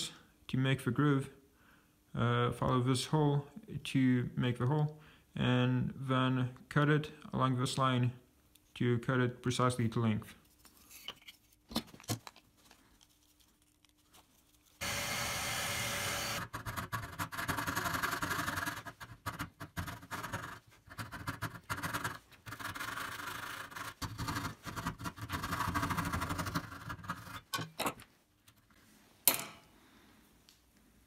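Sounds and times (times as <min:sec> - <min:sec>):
drill press drilling wood: 0:14.8 - 0:16.5
hand saw cutting wood: 0:14.8 - 0:16.5.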